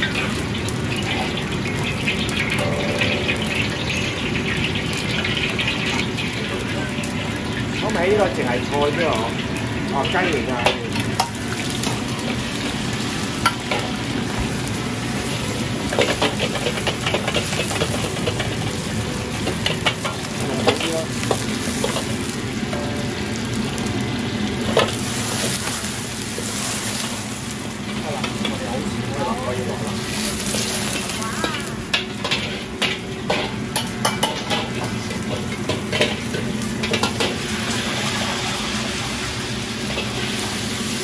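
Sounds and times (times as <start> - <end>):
gas burner rushing: 0.0 - 41.0
vegetables sizzling in wok: 0.0 - 41.0
ladle scraping wok: 24.6 - 41.0.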